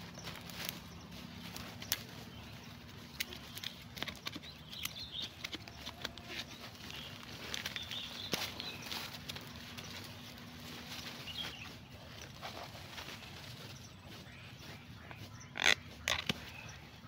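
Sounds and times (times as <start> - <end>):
shrub rustling: 0.0 - 17.0
woody stems snapping and crackling: 1.4 - 9.5, 15.6 - 16.5.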